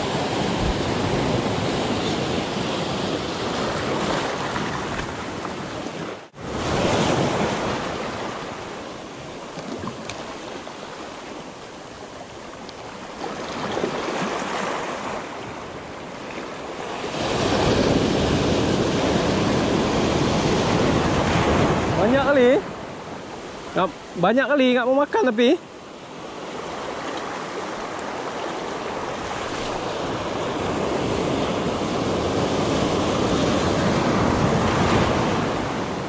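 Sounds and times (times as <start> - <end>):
surf breaking on rocky shore: 0.0 - 5.4
wind buffeting microphone: 0.0 - 8.7.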